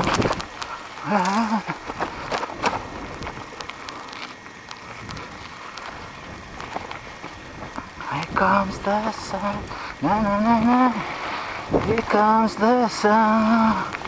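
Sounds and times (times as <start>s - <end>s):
wind on microphone: 0.0s - 0.7s, 4.8s - 12.6s
person humming: 1.0s - 1.8s.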